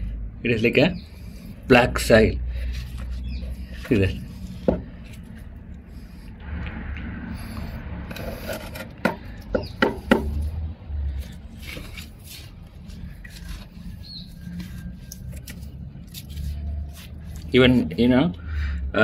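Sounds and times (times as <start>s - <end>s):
low steady rumble: 0.0s - 19.0s
sharp knocks: 9.0s - 10.4s.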